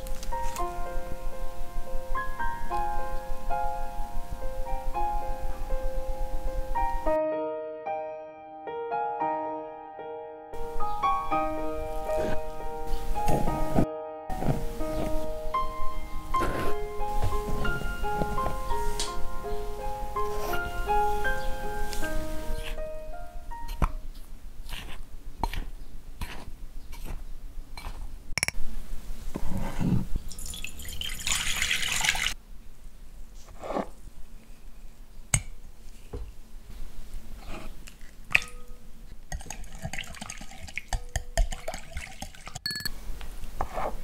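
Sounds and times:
rustling hiss: 14.4 - 23.0
whisk clinking against glass bowl: 39.3 - 42.9
glass bowls clinking on wood: 41.0 - 42.9.

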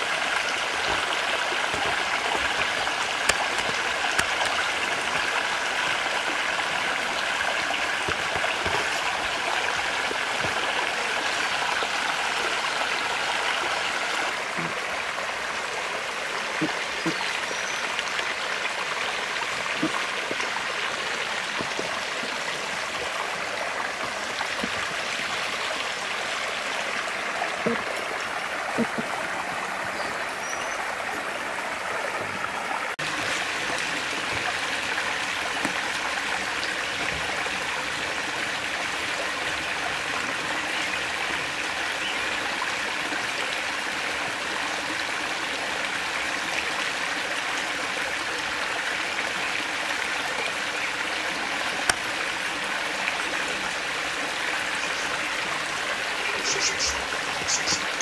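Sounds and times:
stream running over rocks: 0.0 - 58.0.

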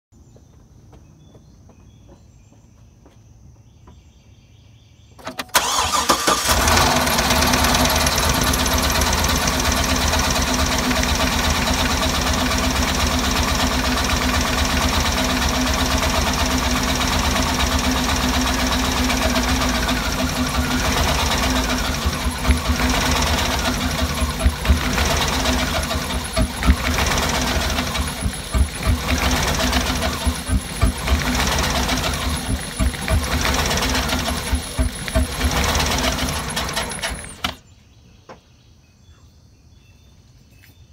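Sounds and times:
car engine cranking: 5.2 - 37.6
car engine idling unevenly: 5.5 - 37.6.

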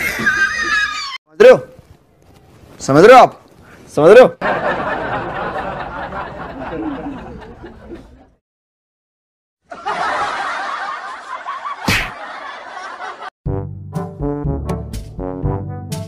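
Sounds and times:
sharp smack: 11.8 - 12.2.

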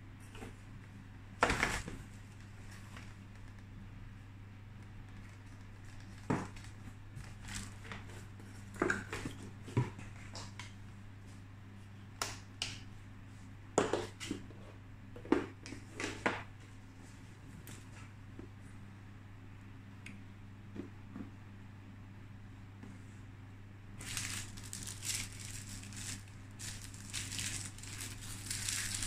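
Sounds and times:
steady low hum: 0.0 - 29.0
packaging knocks and crinkles: 24.0 - 29.0.

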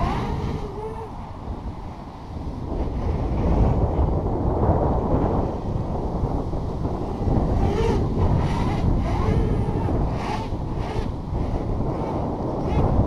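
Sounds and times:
faint whine of drone motors: 0.0 - 13.0
wind buffeting microphone: 0.0 - 13.0.

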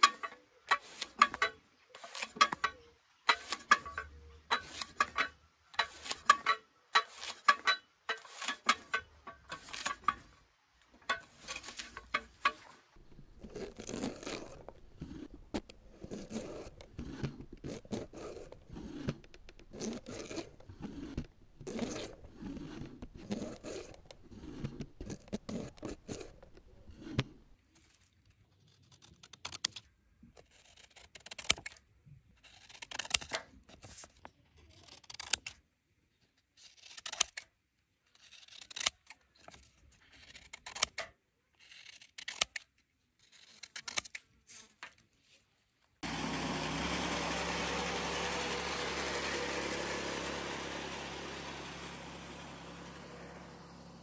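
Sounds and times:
continuous scraping: 0.0 - 54.0
scissors snipping paper: 13.4 - 27.3, 30.4 - 31.8, 32.4 - 35.6, 36.6 - 37.5, 38.1 - 45.0.

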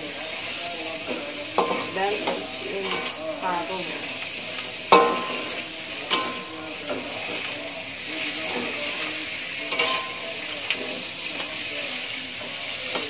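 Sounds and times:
food sizzling in oil: 0.0 - 13.0
metal spatula scraping wok: 0.4 - 11.4
spatula clanging against wok: 1.5 - 3.2, 4.9 - 7.1, 9.7 - 10.8.

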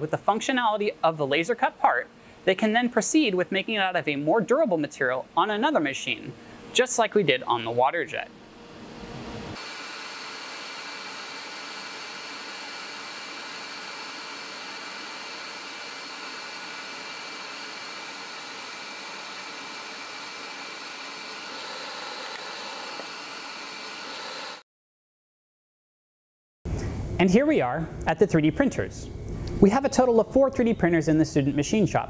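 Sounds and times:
laser cutter hiss: 9.6 - 24.6.

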